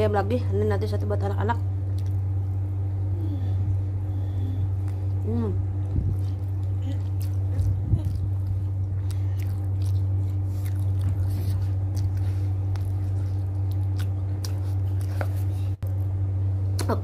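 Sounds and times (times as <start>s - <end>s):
low electrical hum: 0.0s - 17.0s
chewing and biting food: 1.9s - 2.4s, 4.7s - 16.2s.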